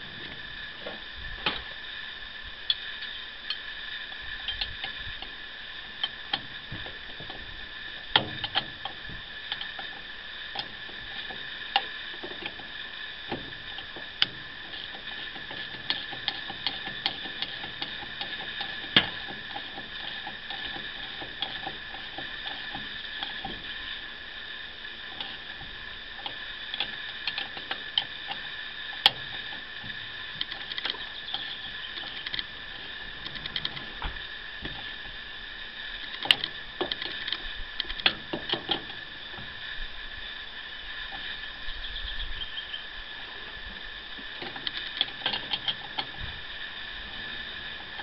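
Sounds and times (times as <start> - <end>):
steady high-pitched hum: 0.0 - 48.0.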